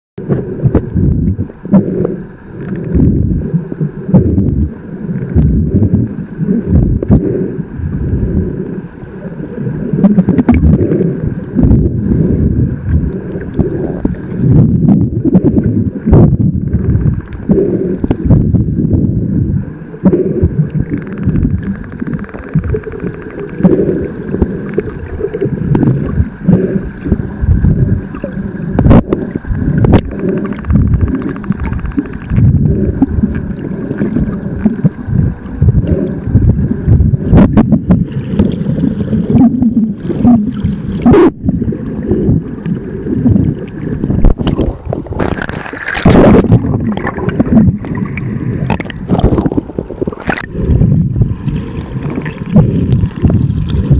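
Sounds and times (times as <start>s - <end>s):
wind buffeting microphone: 0.2s - 2.0s, 2.8s - 53.9s
water sloshing: 37.4s - 53.9s.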